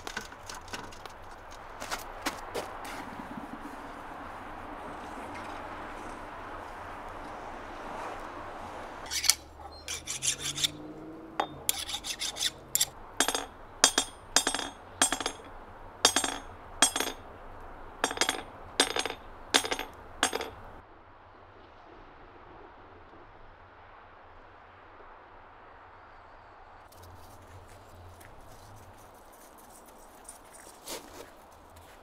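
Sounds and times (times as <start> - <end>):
hand tool scraping steel: 9.1 - 17.2, 18.0 - 20.8.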